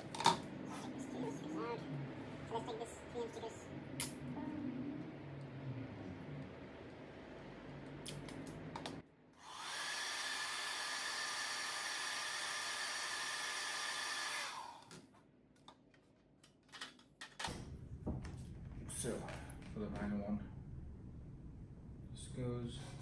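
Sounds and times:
hair dryer blowing: 0:09.4 - 0:14.9.

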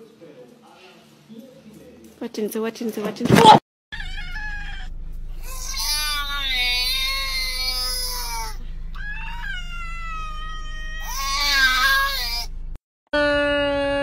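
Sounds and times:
kitten meowing: 0:05.5 - 0:12.5.

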